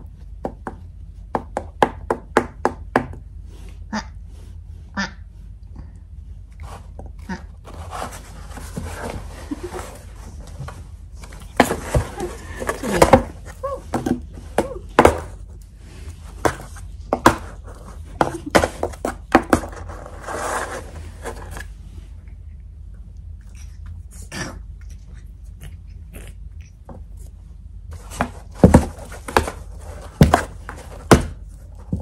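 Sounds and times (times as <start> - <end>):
rustling and scraping: 6.2 - 22.5, 26.8 - 32.0.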